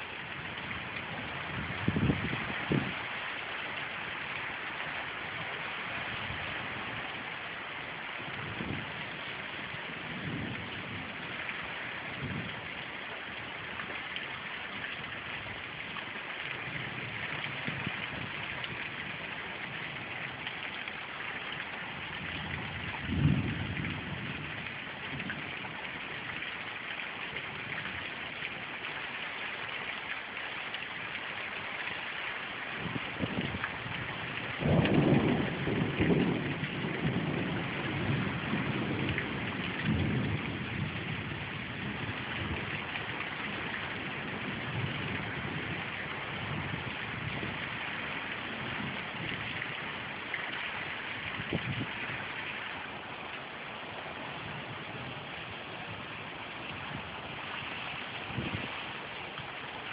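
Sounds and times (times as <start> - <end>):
heavy rain falling: 0.0 - 59.9
thunder rumbling: 22.0 - 25.8, 32.8 - 47.7.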